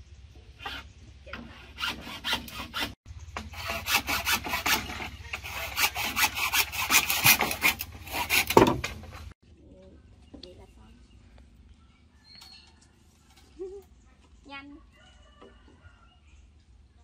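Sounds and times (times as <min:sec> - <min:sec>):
hand tool rasping against wood: 0:00.6 - 0:09.0.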